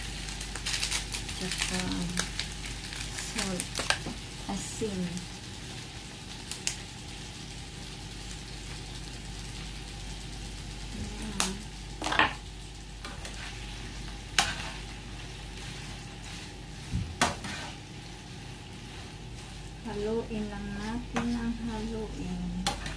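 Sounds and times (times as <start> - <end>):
shrimp sizzling in hot oil: 0.0 - 22.9
spatula stirring in pan: 11.9 - 22.9.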